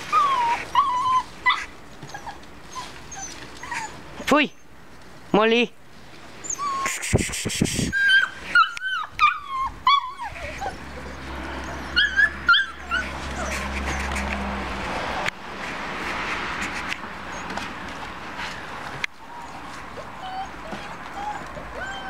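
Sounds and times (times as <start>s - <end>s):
puppies whimpering and yipping: 0.0s - 4.7s, 6.3s - 14.4s, 17.2s - 17.7s, 19.1s - 22.0s.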